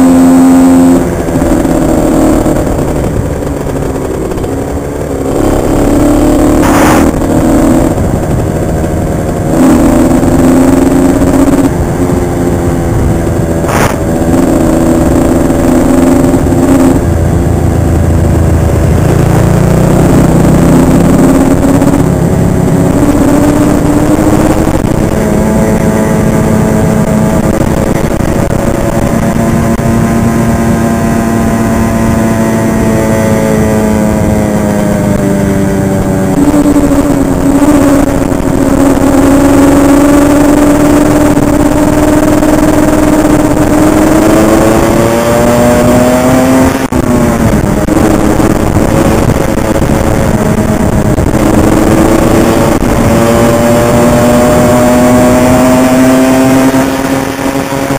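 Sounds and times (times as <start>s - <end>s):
motorcycle engine revving: 0.0s - 57.9s.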